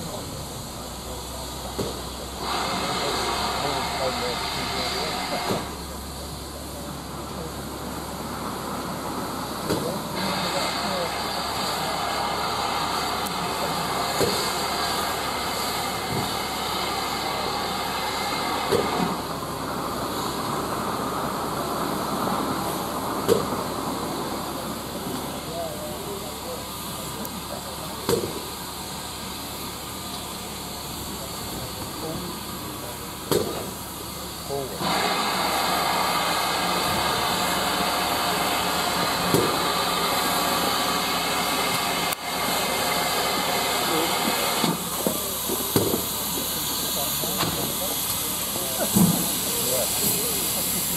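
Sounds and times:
steam locomotive hiss and rumble: 0.0 - 50.9.

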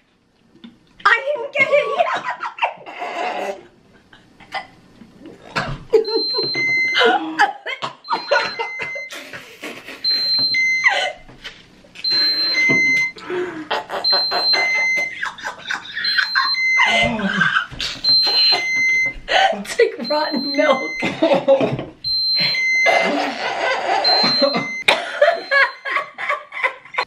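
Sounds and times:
people gagging and coughing: 1.6 - 3.6, 4.4 - 9.9, 20.6 - 26.0
people laughing: 5.9 - 11.0, 12.5 - 19.4, 20.0 - 22.0, 22.9 - 27.0
pump alarm beeping: 6.0 - 7.1, 8.0 - 9.1, 10.0 - 11.0, 12.0 - 13.2, 14.0 - 15.2, 15.9 - 17.1, 18.0 - 19.2, 20.0 - 21.1, 22.0 - 23.2, 24.0 - 26.1.

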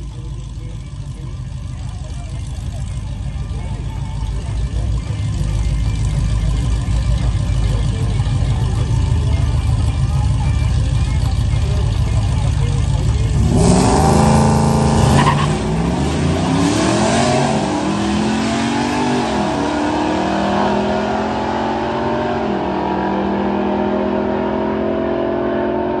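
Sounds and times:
second car racing: 1.2 - 26.0
pickup engine revving through gears: 13.3 - 26.0.

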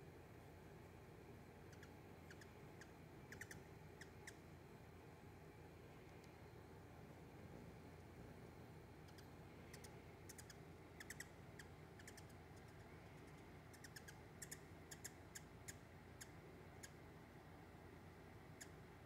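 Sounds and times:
hummingbird chip calls: 1.6 - 4.4, 9.0 - 17.0, 18.6 - 18.8.

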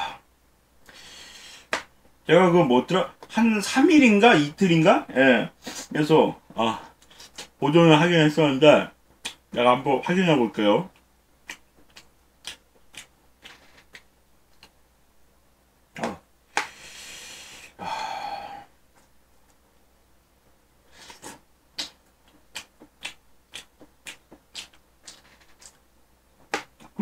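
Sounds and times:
chewing mouth noises: 11.4 - 14.7, 21.0 - 25.8.

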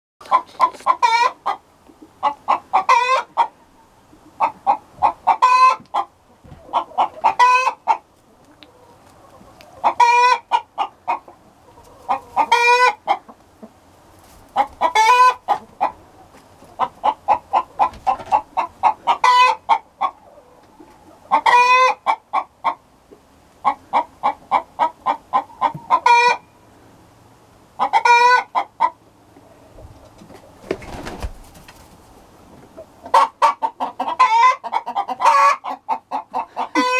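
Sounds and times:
hens cackling: 0.2 - 26.5, 27.7 - 36.9
soft rustle: 14.0 - 14.8.

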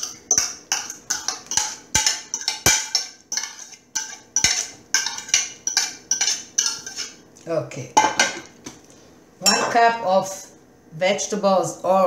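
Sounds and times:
utensil scraping and knocking bowl: 0.0 - 7.2.

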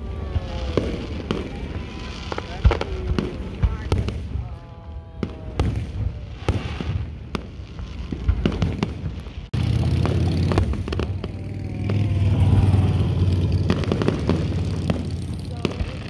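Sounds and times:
fireworks bangs and crackles: 0.0 - 16.0
low rumble: 9.5 - 16.0.

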